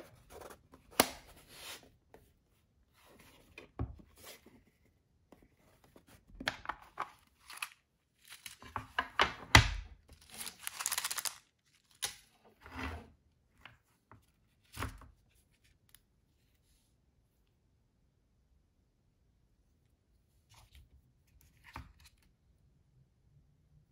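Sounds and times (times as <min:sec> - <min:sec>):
paper packet crinkling: 0:07.3 - 0:08.8, 0:10.2 - 0:12.2.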